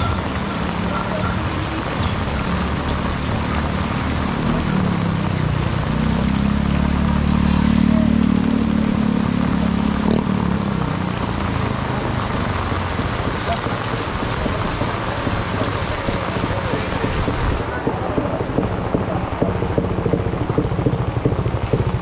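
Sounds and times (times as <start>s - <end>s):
torrential rain on awnings: 0.0s - 22.0s
vehicle engine: 0.0s - 22.0s.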